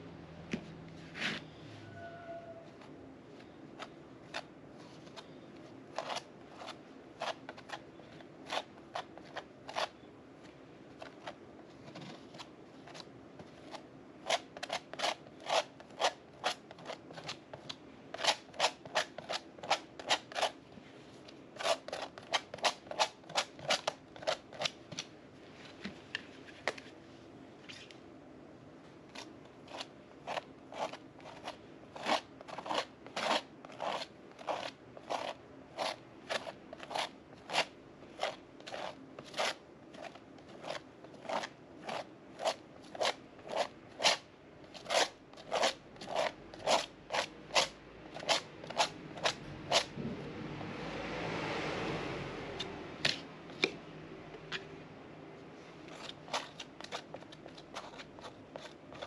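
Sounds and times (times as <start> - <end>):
palette knife scraping paste: 1.1 - 2.5, 5.9 - 10.0, 11.0 - 20.6, 21.6 - 25.1, 29.1 - 50.0, 55.9 - 59.0.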